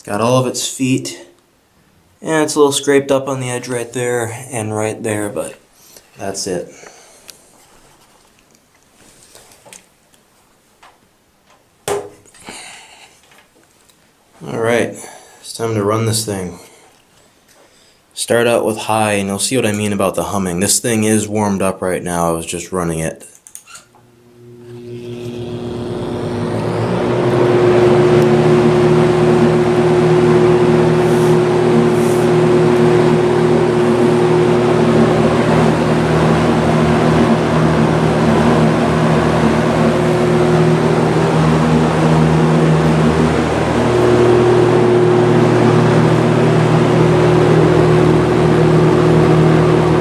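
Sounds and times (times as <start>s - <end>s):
fan motor humming: 23.9s - 50.0s
fan air rushing: 24.0s - 50.0s.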